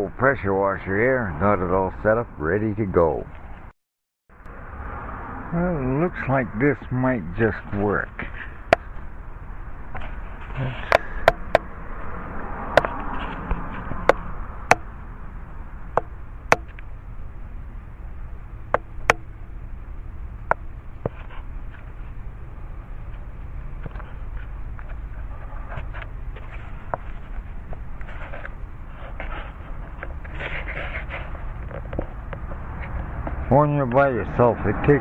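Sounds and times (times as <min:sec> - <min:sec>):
low background rumble: 0:07.3 - 0:33.6.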